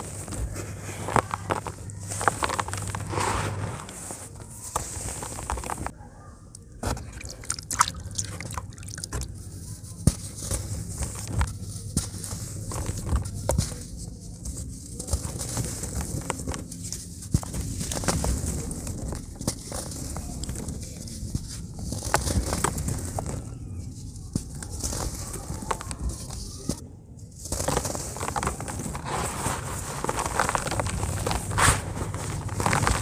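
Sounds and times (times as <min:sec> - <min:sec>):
wet cement crunching: 0:06.7 - 0:26.5, 0:27.4 - 0:33.0.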